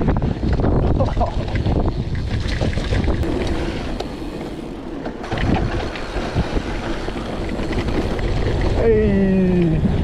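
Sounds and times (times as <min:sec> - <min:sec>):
bike tyres rolling on dirt: 0:00.0 - 0:10.0
rush of wind: 0:00.0 - 0:10.0
bike knocks and rattles: 0:05.0 - 0:09.0.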